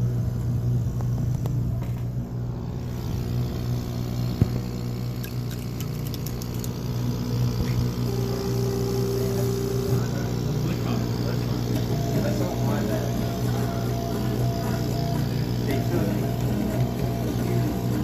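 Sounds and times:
machine low hum: 0.0 - 18.0
steady higher tone: 8.0 - 18.0.

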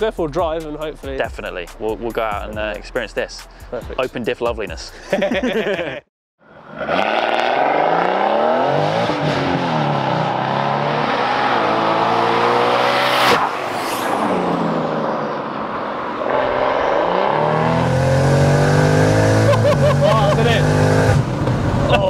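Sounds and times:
car engine accelerating hard: 6.5 - 22.0.

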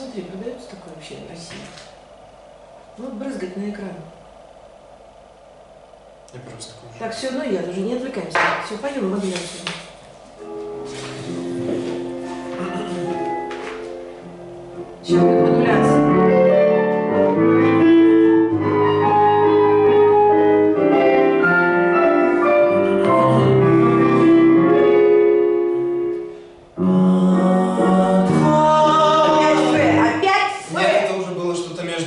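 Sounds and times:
piano music with held chords: 10.3 - 30.2.

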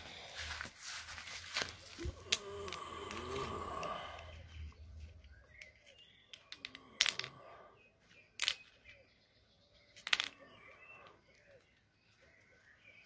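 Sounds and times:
metal tubes clinking on stone: 2.3 - 7.5, 8.4 - 9.0, 9.8 - 11.8.

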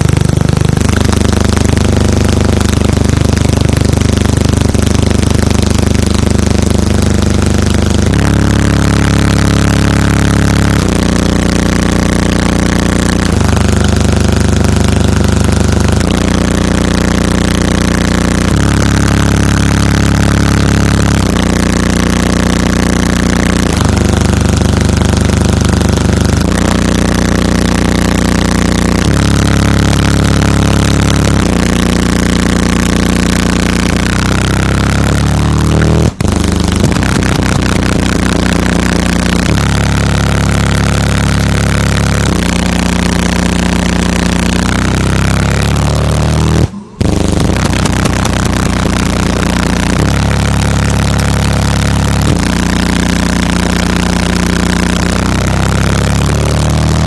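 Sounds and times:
heavy distorted bass drone: 0.0 - 57.0.

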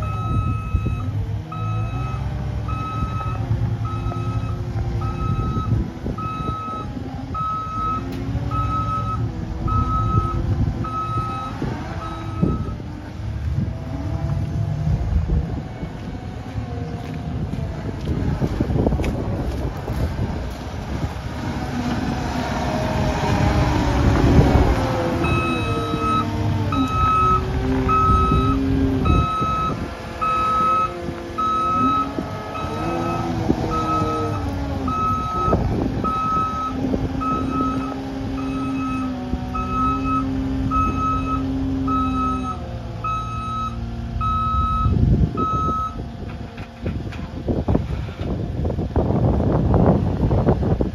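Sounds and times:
reverse alarm beeping: 0.0 - 12.8, 25.2 - 46.0
diesel engine revving: 0.0 - 50.9.

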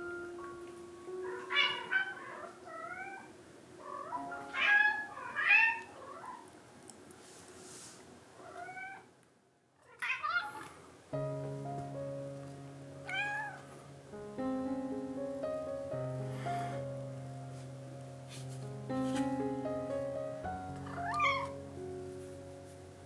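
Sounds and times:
cat meowing: 8.4 - 9.1, 13.1 - 13.6, 20.9 - 21.6.

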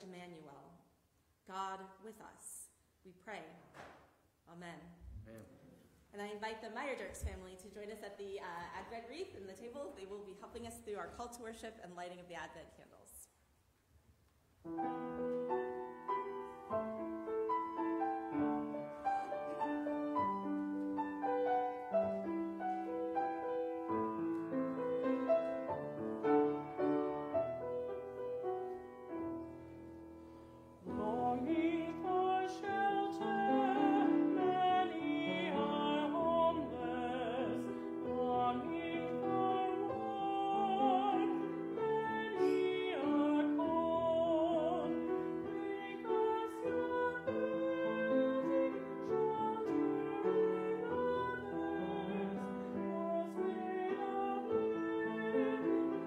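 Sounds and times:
piano playing: 14.6 - 56.0
man singing with vibrato: 30.8 - 56.0.

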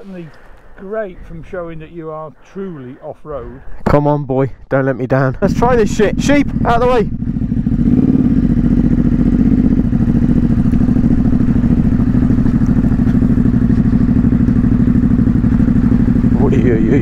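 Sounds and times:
motorcycle engine running: 5.4 - 17.0.

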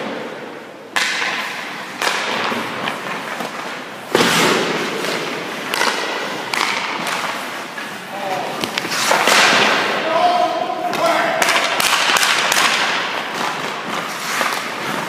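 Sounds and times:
hockey pucks cracking: 0.9 - 15.0.

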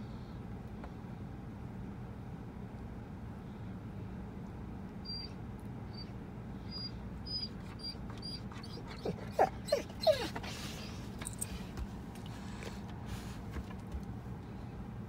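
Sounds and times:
steady low hum: 0.0 - 15.0
dog whining and whimpering: 5.0 - 11.6.

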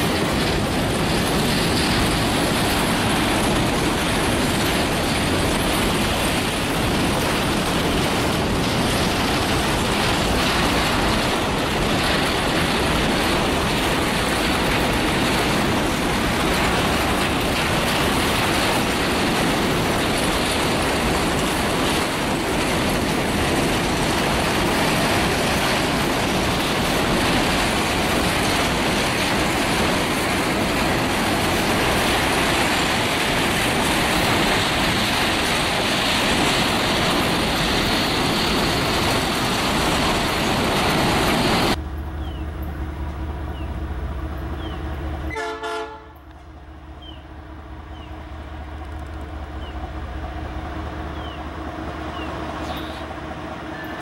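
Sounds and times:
locomotive rumble: 0.0 - 54.0
train wheel and rail noise: 0.0 - 54.0.

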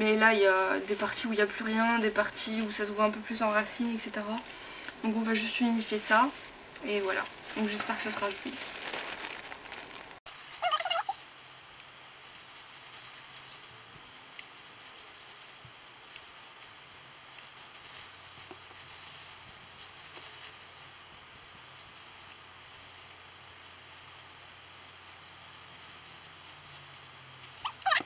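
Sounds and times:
gloved hands rustling in hair: 6.0 - 28.0.

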